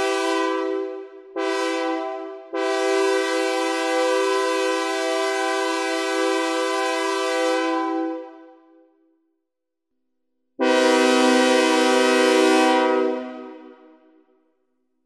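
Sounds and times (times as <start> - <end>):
synthesizer train horn blasts: 0.0 - 8.7, 10.6 - 14.3.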